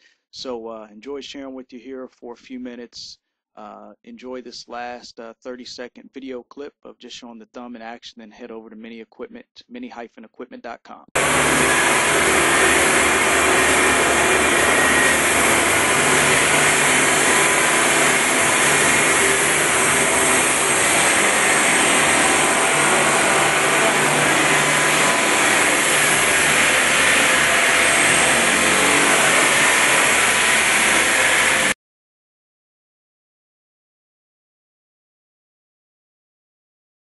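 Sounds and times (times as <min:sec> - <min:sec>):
hydraulic power unit running: 0:11.2 - 0:31.8.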